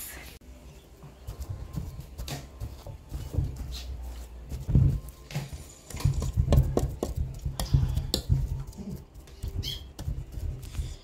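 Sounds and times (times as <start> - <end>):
pestle knocking in stone mortar: 5.9 - 8.7.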